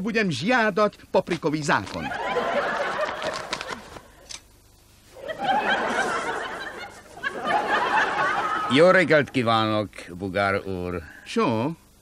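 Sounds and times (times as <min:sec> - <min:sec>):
audience laughter: 0:01.9 - 0:04.2, 0:05.1 - 0:09.3.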